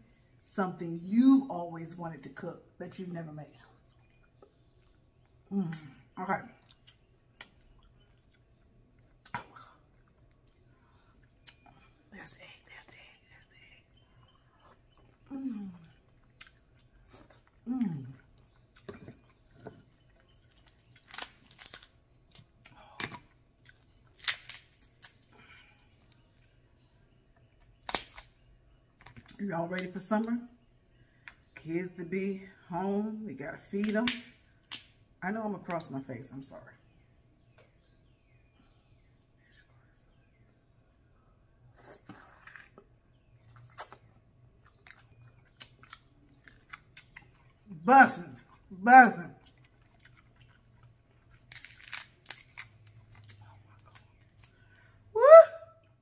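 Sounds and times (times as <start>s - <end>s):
lip smacks and clicks: 6.6s - 10.6s, 11.2s - 13.4s, 27.3s - 28.4s, 41.4s - 47.6s
crab shells cracking: 20.2s - 25.3s, 27.6s - 29.3s, 33.8s - 35.0s, 49.5s - 54.7s
slurp: 41.7s - 44.1s
wet eating mouth sounds: 41.7s - 52.0s.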